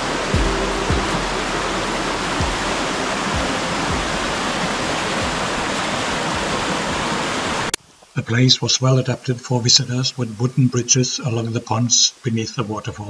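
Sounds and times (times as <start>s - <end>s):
stream water rushing over cascades: 0.0s - 9.1s
faint low knocks: 0.2s - 7.1s.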